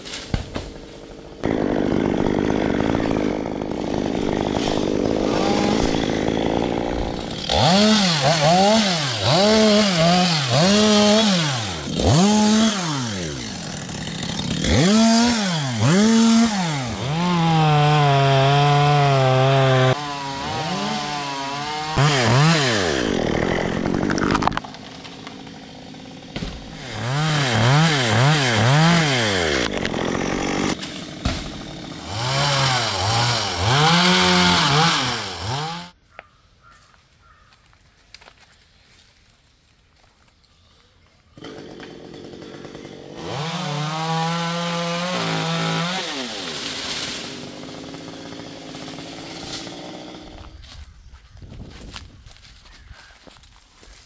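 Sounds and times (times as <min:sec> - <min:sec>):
chainsaw idling: 0:01.2 - 0:20.7, 0:21.7 - 0:24.6, 0:25.2 - 0:35.8, 0:41.4 - 0:45.9, 0:47.3 - 0:50.5
chainsaw revving: 0:01.2 - 0:24.6, 0:25.2 - 0:36.0, 0:41.4 - 0:50.6.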